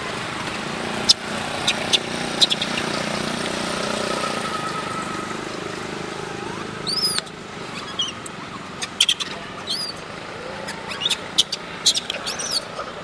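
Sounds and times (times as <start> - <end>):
motor engine running: 0.0 - 13.0
short high squeaks: 6.3 - 12.7.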